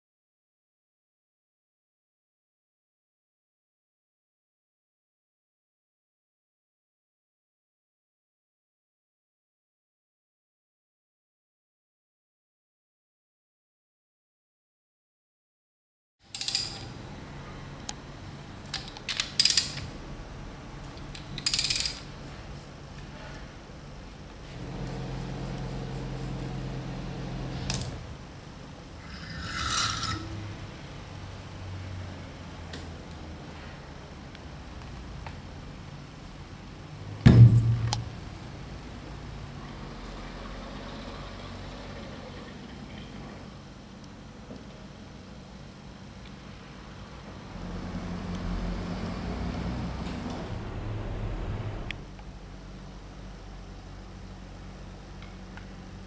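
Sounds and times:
ratchet wrench clicking: 16.3s - 16.9s, 18.7s - 19.8s, 21.1s - 22.1s
machine humming: 24.2s - 31.5s, 47.4s - 53.4s.

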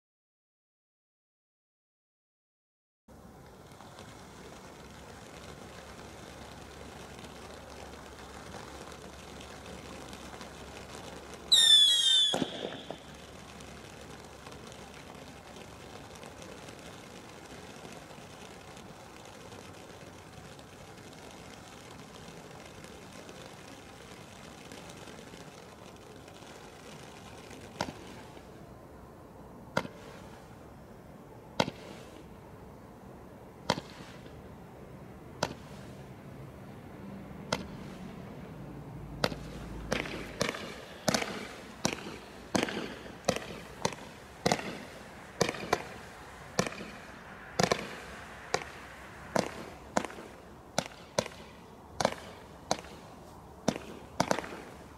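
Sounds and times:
firework cracks: 3.1s - 28.8s, 29.6s - 30.8s, 31.5s - 32.3s, 33.5s - 36.4s, 37.3s - 54.9s
firework fountain hissing: 3.1s - 54.9s.

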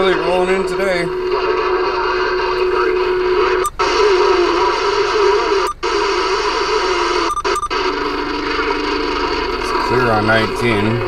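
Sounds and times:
steady low whistle: 0.0s - 3.7s
radio static: 0.0s - 11.0s.

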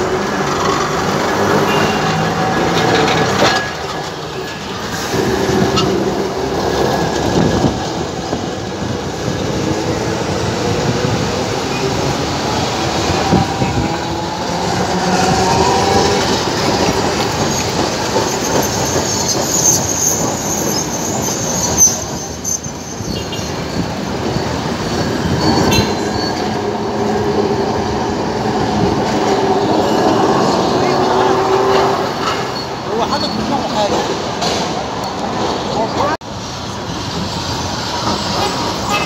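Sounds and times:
tram wheels clattering on rails: 0.0s - 39.0s
high-pitched wheel squeal: 17.0s - 26.8s.

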